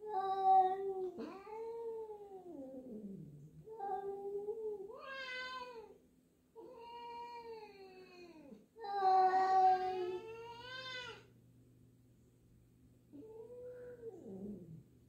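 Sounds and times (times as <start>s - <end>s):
cats yowling: 3.7s - 5.9s, 6.6s - 11.2s.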